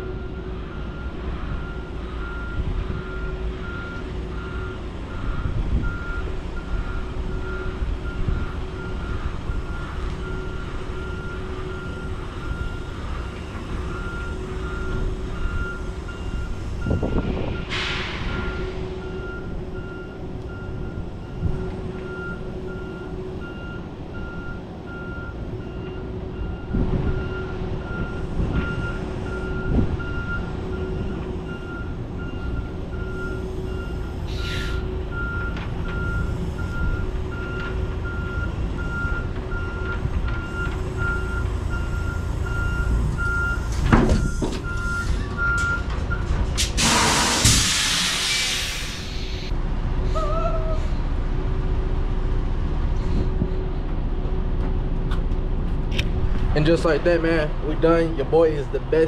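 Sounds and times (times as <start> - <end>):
diesel engine rumble: 0.0 - 59.0
air brake hiss: 17.7 - 18.5, 34.3 - 34.9, 46.6 - 49.5
backup alarm beeping: 18.3 - 46.3.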